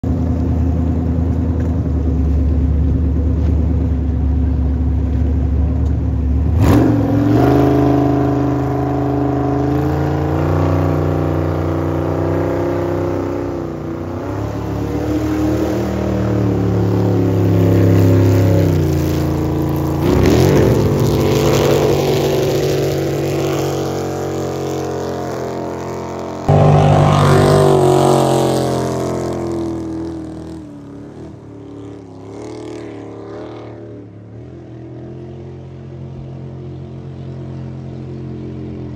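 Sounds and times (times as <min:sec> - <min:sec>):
jet boat engine revving: 0:03.9 - 0:38.9
spraying water rushing: 0:10.1 - 0:29.6.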